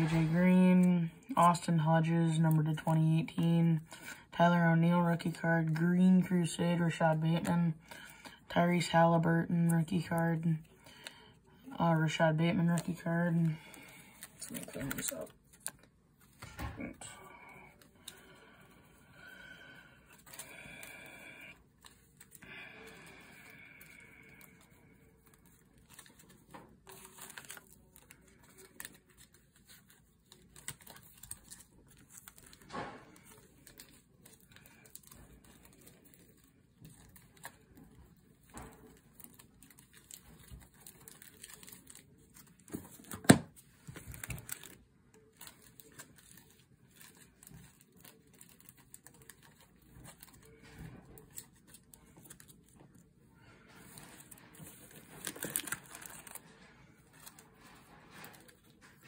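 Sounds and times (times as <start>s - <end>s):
cards rustling and sliding: 11.8s - 16.7s, 19.9s - 53.0s, 53.7s - 59.0s.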